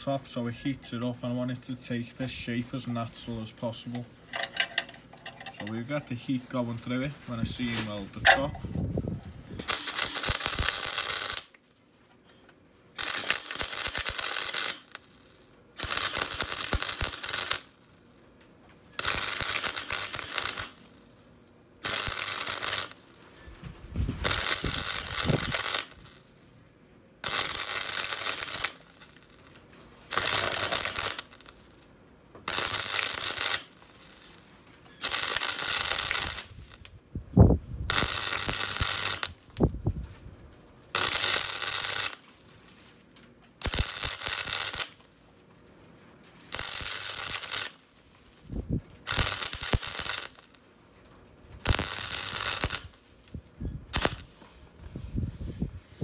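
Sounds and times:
electric arc welding: 7.5s - 11.6s, 12.9s - 18.2s, 18.9s - 21.2s, 21.8s - 26.5s, 27.2s - 37.0s, 37.9s - 39.9s, 40.9s - 42.6s, 43.6s - 45.2s, 46.4s - 50.6s, 51.6s - 54.4s.

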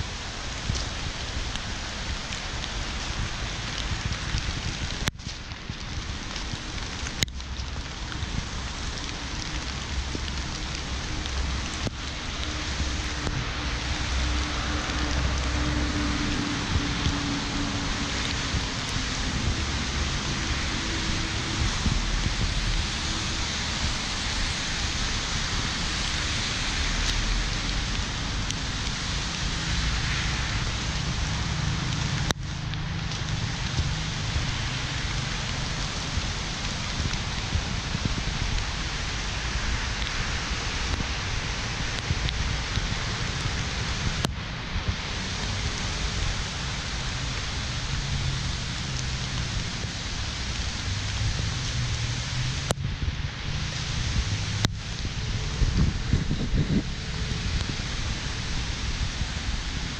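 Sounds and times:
rain falling on paving: 0.0s - 59.9s
wind buffeting microphone: 0.0s - 59.9s.

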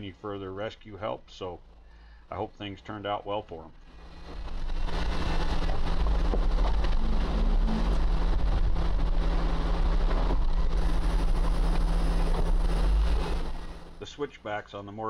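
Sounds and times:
tyres on dirt trail: 3.6s - 14.2s
vehicle engine driving: 3.8s - 14.3s
low wind rumble on microphone: 3.9s - 14.0s.

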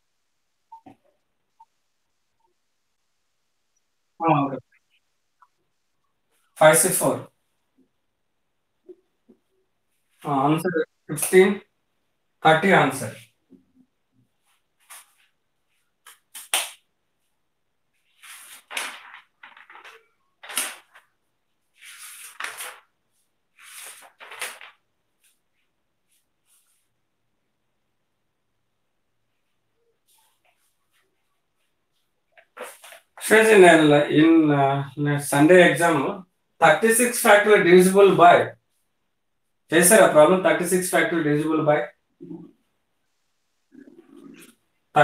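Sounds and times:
paper rustling: 17.9s - 26.8s, 30.1s - 33.2s.

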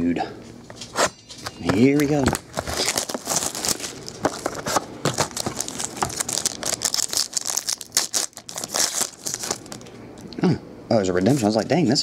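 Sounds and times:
shrink wrap crinkling: 0.8s - 10.3s
foil wrapper tearing: 2.2s - 9.9s.

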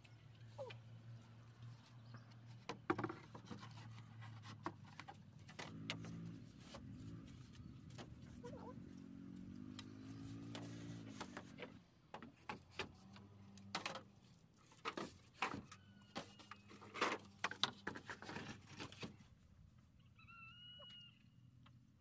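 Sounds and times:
chirping animal call: 20.0s - 21.4s.

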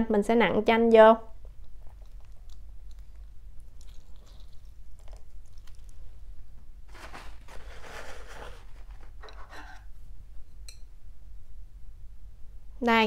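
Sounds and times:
rustling noise: 6.8s - 9.9s.

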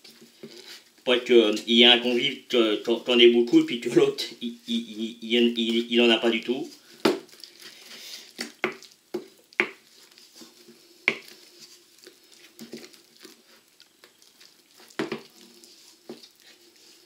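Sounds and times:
spoon stirring thick batter: 5.4s - 17.0s.

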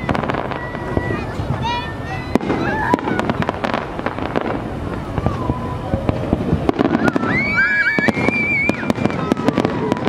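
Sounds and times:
steady rumble: 0.0s - 7.4s
firework whistle: 0.0s - 10.0s
fireworks bangs and crackles: 0.0s - 10.0s.

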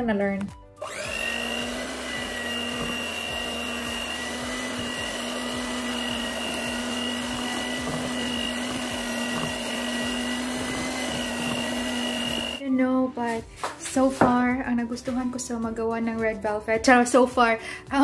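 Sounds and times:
beaters churning batter: 0.8s - 12.6s
electric hand mixer whine: 0.8s - 12.6s.

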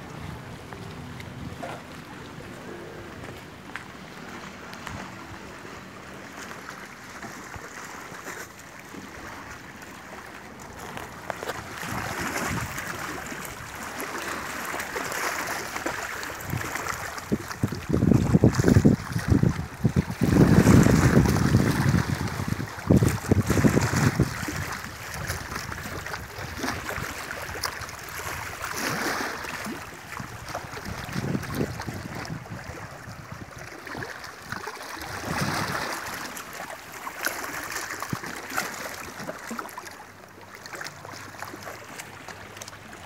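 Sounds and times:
waves lapping against boulders: 0.0s - 43.0s
wind buffeting microphone: 11.6s - 13.7s, 16.3s - 28.7s, 29.8s - 33.7s, 35.0s - 36.0s.

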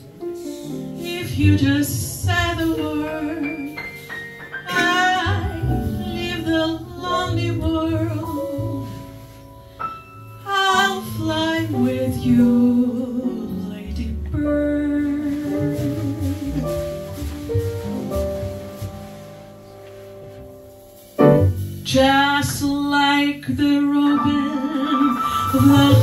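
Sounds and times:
jazz piano bass and drums: 0.0s - 26.0s
woman singing: 1.0s - 3.9s, 4.7s - 9.1s, 10.5s - 16.7s, 21.9s - 26.0s.

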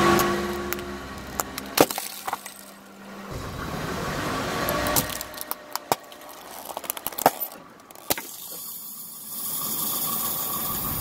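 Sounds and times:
car engine running: 0.0s - 8.1s.

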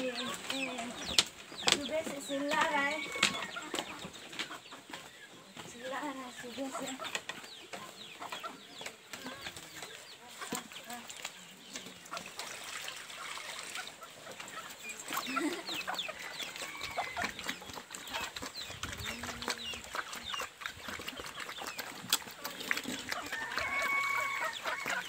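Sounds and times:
chickens clucking: 0.0s - 25.0s
pigs eating at a trough: 0.0s - 25.0s.

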